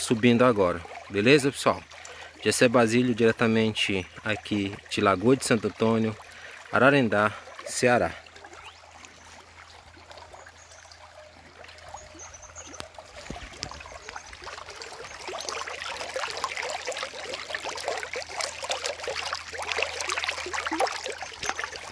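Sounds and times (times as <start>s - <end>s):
stream trickling and gurgling: 0.0s - 21.9s
fish splashing in shallows: 5.6s - 21.9s.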